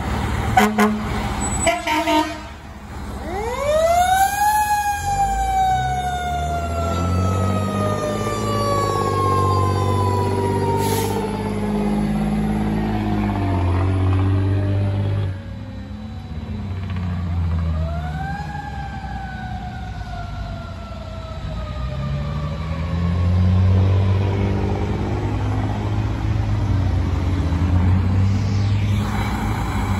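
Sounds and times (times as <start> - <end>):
diesel truck engine rumble: 0.0 - 3.3, 3.9 - 29.9
fire engine siren winding: 3.2 - 13.0.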